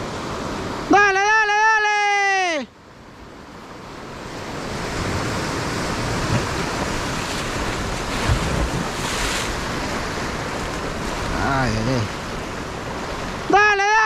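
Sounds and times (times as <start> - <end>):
ocean surf breaking on beach: 0.0 - 14.0
rush of spray: 4.1 - 13.5.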